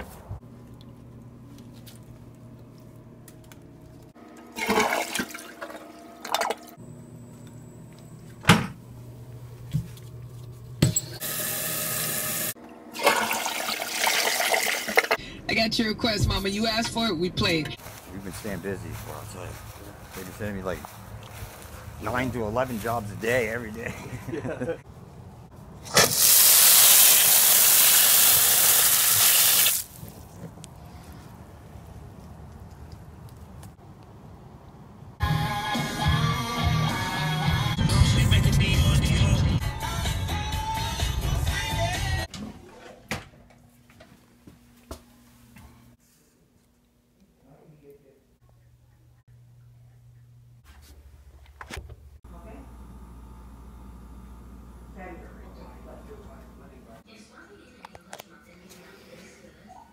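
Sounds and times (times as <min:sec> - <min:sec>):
water hissing into toilet tank: 0:11.2 - 0:15.2, 0:26.0 - 0:29.9
pressurized water spraying from pipe: 0:26.1 - 0:30.0.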